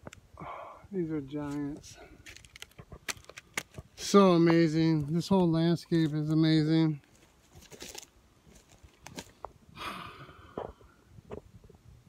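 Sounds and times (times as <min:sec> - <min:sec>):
rustling and handling noise: 0:01.3 - 0:09.6
footsteps on forest trail: 0:01.4 - 0:09.6.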